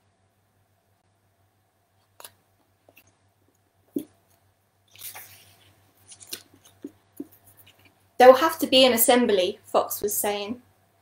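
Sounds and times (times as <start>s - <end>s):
paper rustle: 4.9s - 7.9s.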